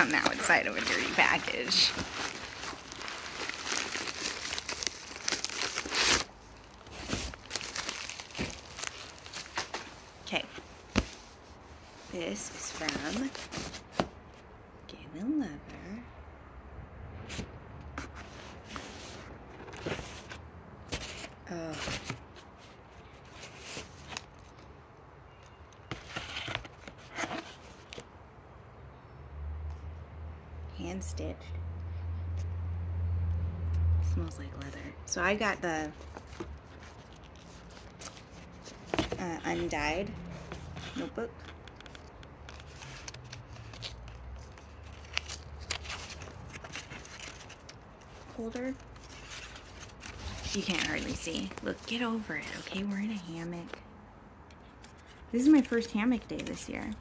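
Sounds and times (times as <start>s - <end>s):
packaging tearing and crinkling: 0.0s - 9.9s, 41.4s - 51.8s.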